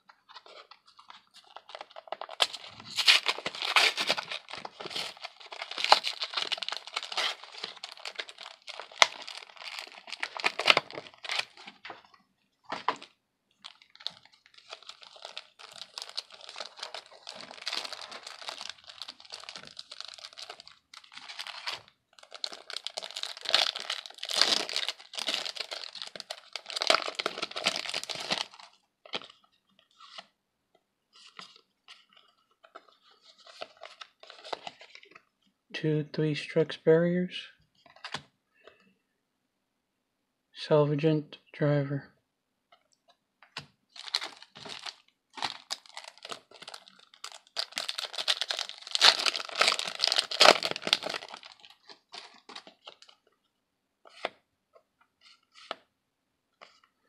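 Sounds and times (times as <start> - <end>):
foil wrapper crinkling and tearing: 0.4 - 12.0, 12.9 - 29.4, 43.9 - 53.2.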